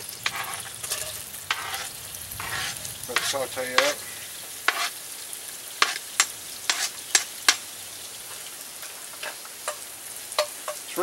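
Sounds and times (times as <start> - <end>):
onions sizzling in oil: 0.0 - 11.0
spoon scraping pot: 0.1 - 4.0, 4.7 - 5.0, 5.8 - 7.6.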